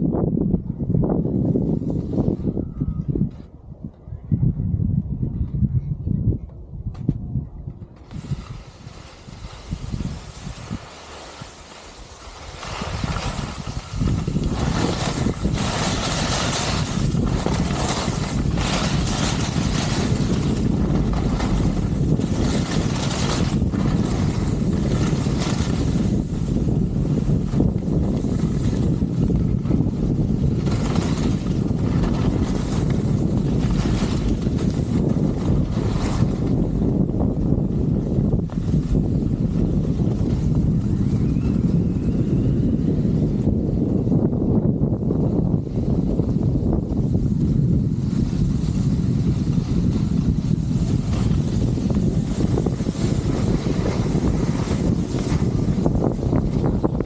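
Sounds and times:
wind rushing over microphone: 0.0s - 57.0s
skis hissing on snow: 8.0s - 36.6s, 48.0s - 56.9s.

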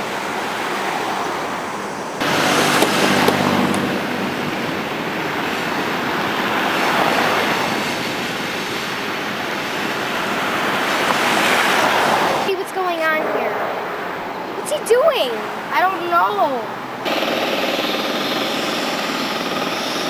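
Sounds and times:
street traffic noise: 0.0s - 20.0s
vehicle engine passing: 2.2s - 8.2s.

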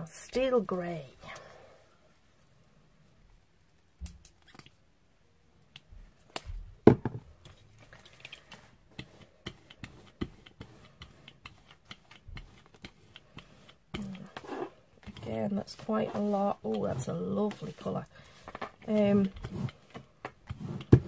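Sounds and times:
rubber brayer ticking: 8.9s - 15.7s.

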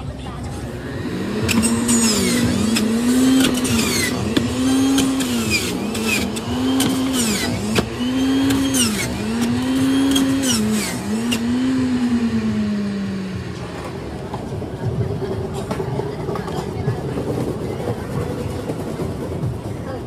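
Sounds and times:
juicer motor whine: 0.2s - 15.2s
fruit being ground: 1.4s - 12.7s.

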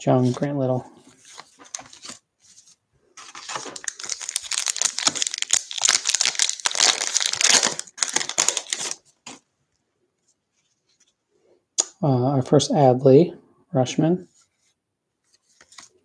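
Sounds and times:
wrapper tearing and crinkling: 3.2s - 9.4s.

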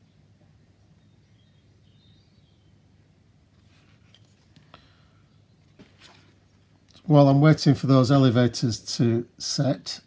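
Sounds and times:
faint bird chirp: 0.0s - 3.1s, 4.7s - 5.8s
low room hum: 0.0s - 10.0s.

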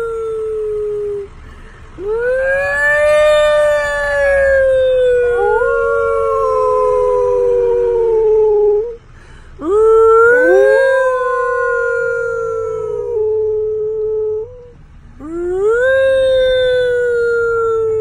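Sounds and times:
woman and dog howling: 2.0s - 9.0s, 9.6s - 14.7s.

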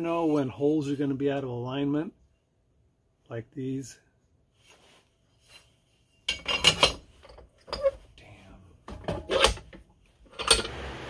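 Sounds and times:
metal bracket clanking against vise: 6.3s - 8.0s, 8.9s - 10.7s.

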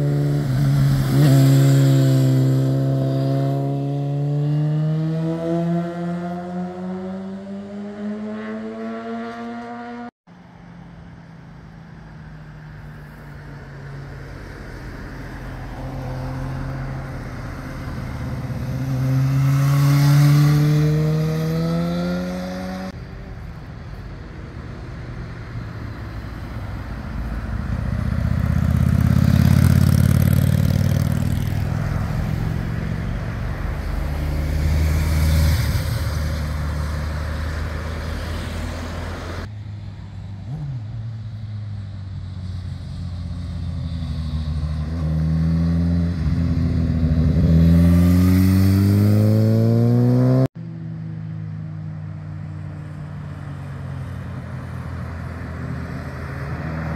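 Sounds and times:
motorcycle rumbling close past: 0.0s - 10.1s, 14.5s - 23.0s, 27.2s - 39.5s, 40.4s - 50.5s
motorcycles passing: 0.0s - 56.9s.

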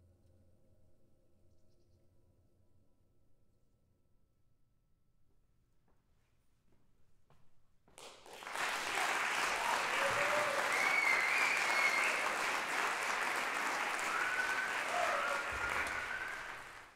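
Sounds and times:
audience applauding: 8.0s - 16.9s.

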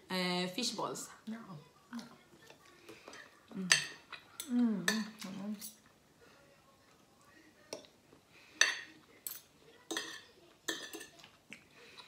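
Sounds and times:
cutlery clinking on plates: 2.9s - 5.9s, 7.6s - 11.6s.

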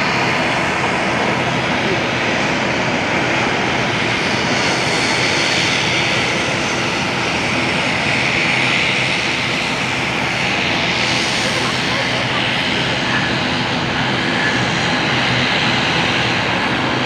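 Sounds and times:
airliner engines running: 0.0s - 17.0s.

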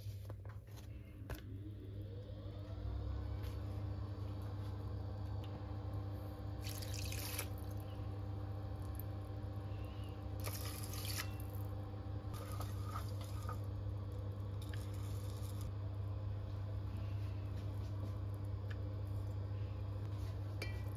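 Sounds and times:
steady low hum: 0.0s - 20.9s
spatula stirring wet rice: 12.3s - 13.7s.

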